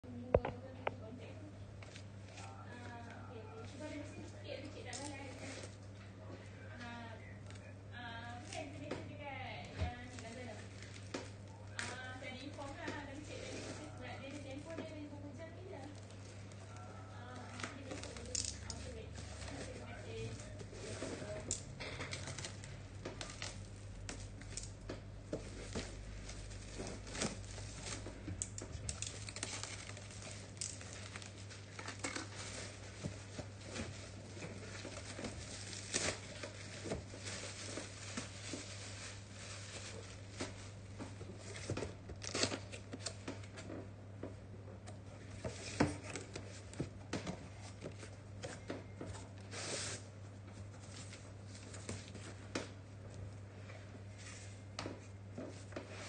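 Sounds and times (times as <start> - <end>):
plastic shrink-wrap tearing and crinkling: 9.4 - 24.9, 25.5 - 43.6, 49.3 - 50.1.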